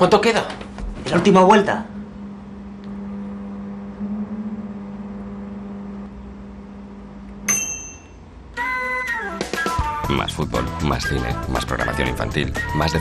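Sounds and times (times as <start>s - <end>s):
microwave oven humming: 0.0s - 9.3s
microwave bell ding: 7.4s - 8.4s.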